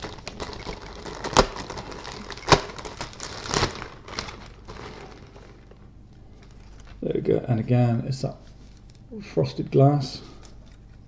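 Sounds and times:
plastic bag rustling: 0:00.0 - 0:07.1.

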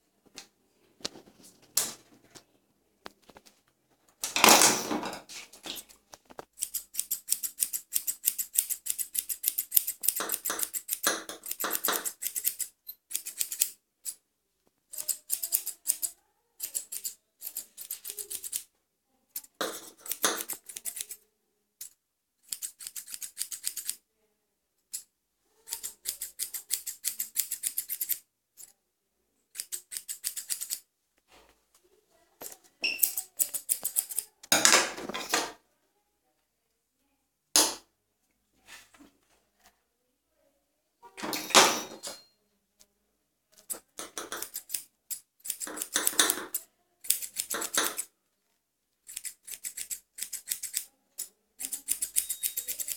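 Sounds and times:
scissors snipping hair: 0:06.6 - 0:14.2, 0:14.9 - 0:18.7, 0:19.4 - 0:21.2, 0:21.8 - 0:24.0, 0:25.7 - 0:28.7, 0:29.5 - 0:30.9, 0:32.9 - 0:34.3, 0:43.6 - 0:48.1, 0:49.0 - 0:52.9.

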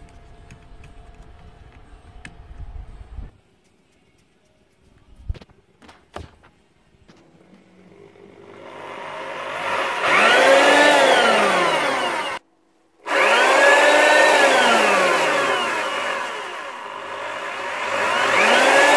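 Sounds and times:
mixing drill motor whining: 0:07.6 - 0:12.4, 0:13.0 - 0:18.9.

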